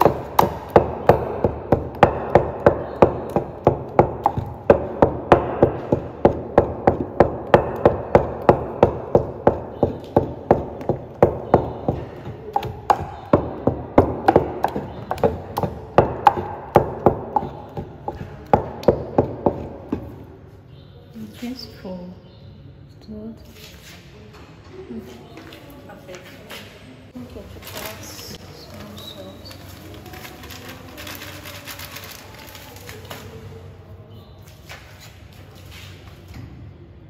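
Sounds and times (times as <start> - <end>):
pestle knocking in wooden mortar: 0.0 - 20.3.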